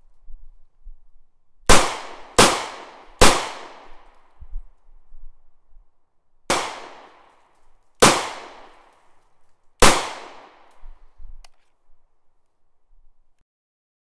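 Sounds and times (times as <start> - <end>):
gunshots with echoing tail: 1.7 - 4.2, 6.5 - 7.4, 8.0 - 9.0, 9.8 - 11.0.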